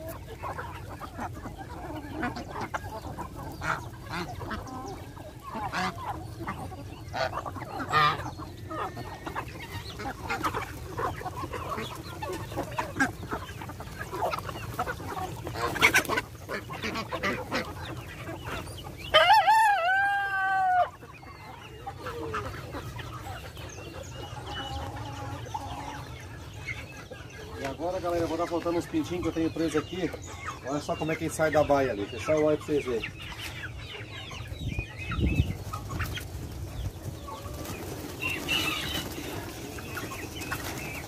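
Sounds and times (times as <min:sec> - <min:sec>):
chickens clucking: 0:00.0 - 0:41.0
rooster crowing: 0:19.1 - 0:21.0.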